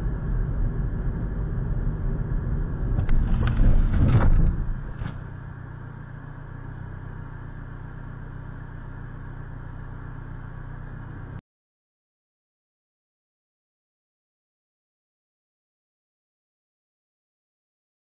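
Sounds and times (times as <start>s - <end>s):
car idling hum: 0.0s - 11.4s
car road and engine rumble: 0.0s - 11.4s.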